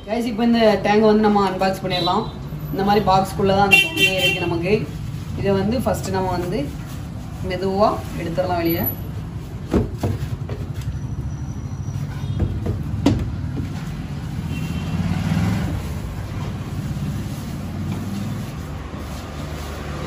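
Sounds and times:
plastic bag rustling: 0:04.4 - 0:10.8, 0:15.3 - 0:20.0
sharp knocks: 0:12.3 - 0:13.8.

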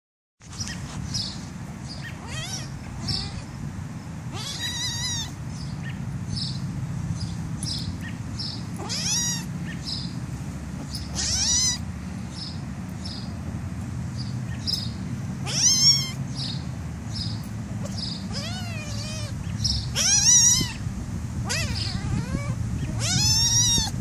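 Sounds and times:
kitten meowing: 0:02.0 - 0:03.5, 0:04.3 - 0:06.0, 0:08.8 - 0:09.8, 0:10.8 - 0:11.9, 0:15.4 - 0:16.2, 0:17.8 - 0:24.0
kitten squeaks: 0:02.0 - 0:03.5, 0:04.3 - 0:06.0, 0:08.8 - 0:09.9, 0:10.8 - 0:11.9, 0:14.5 - 0:16.6, 0:17.8 - 0:24.0.

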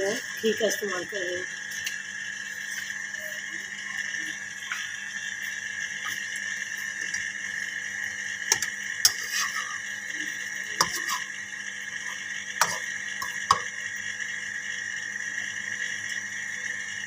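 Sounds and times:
bread frying in pan: 0:05.3 - 0:17.0.

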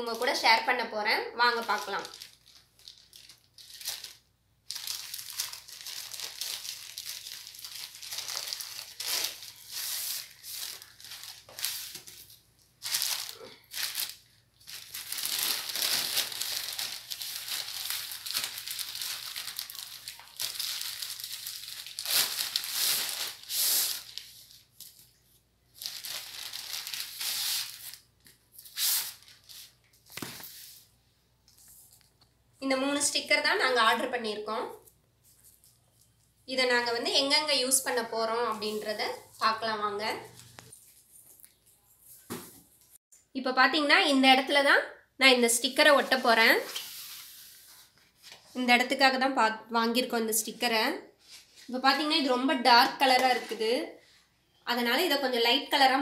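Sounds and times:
plastic bags crinkling and tearing: 0:01.4 - 0:30.4.

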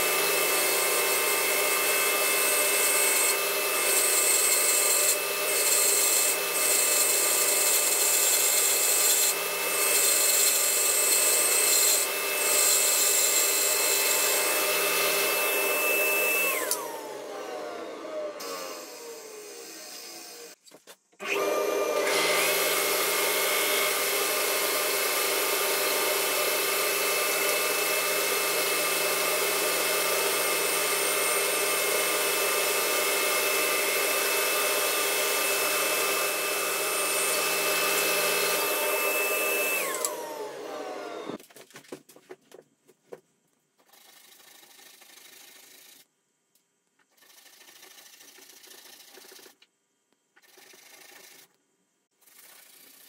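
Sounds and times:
band saw whirring with high whine: 0:00.0 - 0:20.6, 0:21.2 - 0:41.4.

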